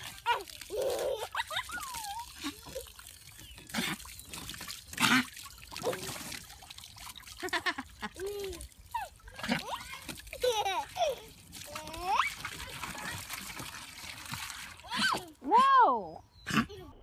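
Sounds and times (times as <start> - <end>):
garden hose water running: 0.0 - 15.6
water splashing: 0.0 - 15.7
toddler babbling and squealing: 14.8 - 15.5.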